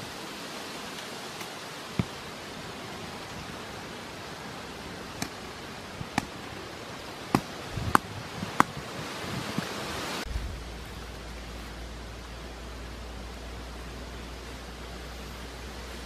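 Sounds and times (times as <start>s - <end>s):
campfire hiss: 0.0s - 16.0s.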